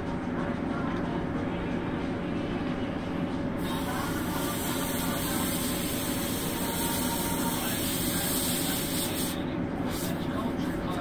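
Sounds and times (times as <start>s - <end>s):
airbrush spraying hiss: 3.6s - 10.2s.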